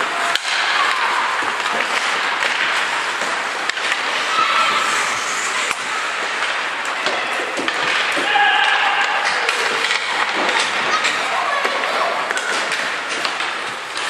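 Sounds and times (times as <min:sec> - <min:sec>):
hockey sticks and puck clacking: 0:00.0 - 0:14.0
skate blades scraping ice: 0:00.0 - 0:14.0
faint shouts: 0:08.2 - 0:09.6.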